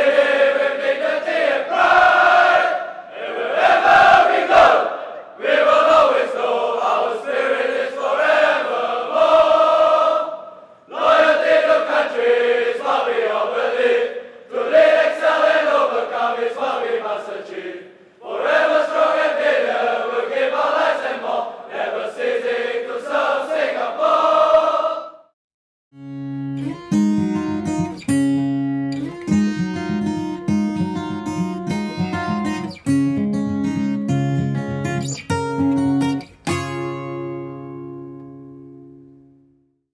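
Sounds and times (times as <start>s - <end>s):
plucked acoustic guitar music: 26.0s - 39.4s.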